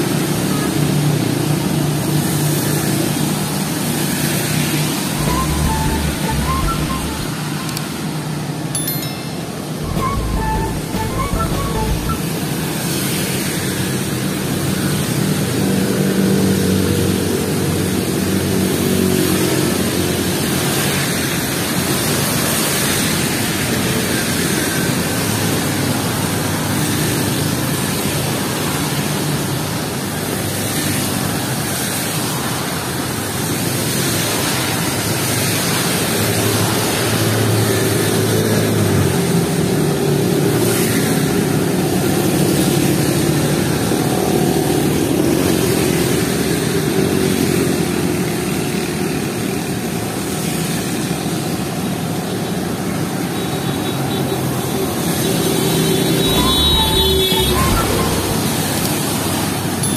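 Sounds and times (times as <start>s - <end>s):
vehicle engine drone: 4.9s - 8.1s, 55.6s - 59.8s
tyres hissing on wet road: 13.4s - 56.3s.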